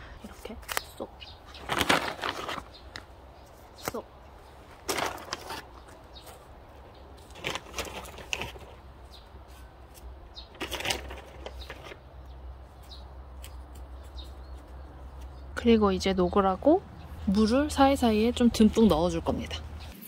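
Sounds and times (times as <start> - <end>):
plastic film crinkling: 1.6 - 3.0, 4.8 - 6.3, 7.2 - 8.8, 10.5 - 12.0.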